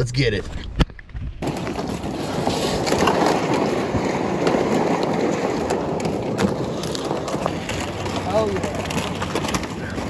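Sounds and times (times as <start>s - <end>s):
rough rushing noise: 1.2s - 10.0s.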